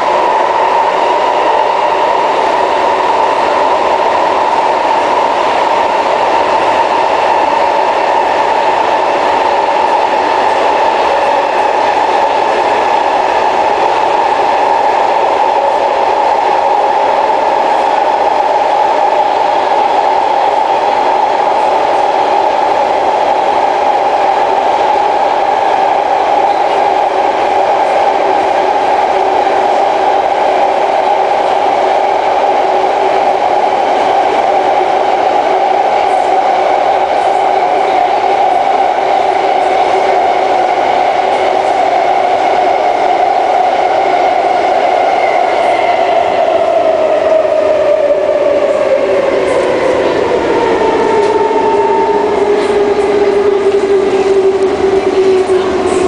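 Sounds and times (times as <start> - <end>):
metro train cabin rumble: 0.0 - 56.0
train whine: 0.0 - 56.0.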